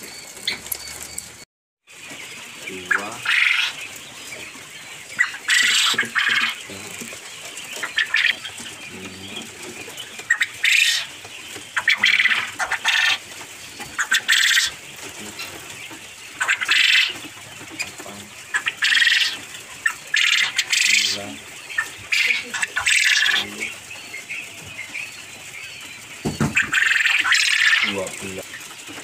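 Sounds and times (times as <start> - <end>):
wings fluttering: 0.0 - 4.0
quail calling: 2.0 - 29.0.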